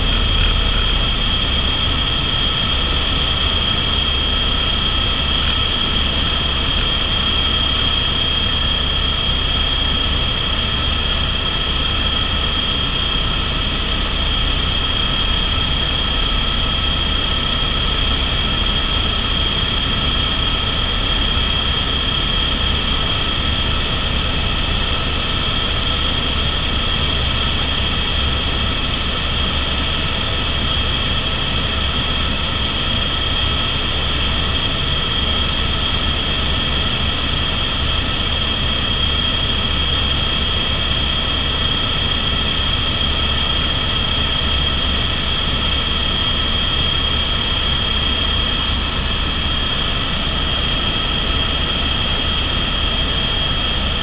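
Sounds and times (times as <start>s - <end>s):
low engine rumble: 0.0s - 3.3s
helicopter turbine whine: 0.0s - 54.0s.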